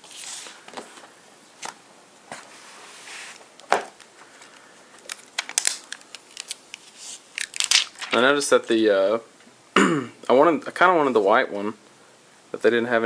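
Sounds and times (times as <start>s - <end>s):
soft rustle: 0.0s - 1.2s, 2.2s - 8.4s.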